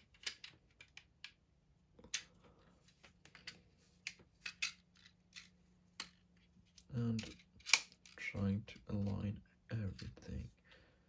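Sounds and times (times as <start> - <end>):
plastic parts clicking together: 0.0 - 1.4, 3.2 - 9.2.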